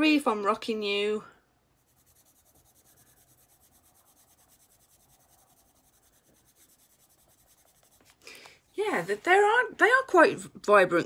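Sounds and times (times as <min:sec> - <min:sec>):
coloured pencil scratching on paper: 0:01.8 - 0:08.2.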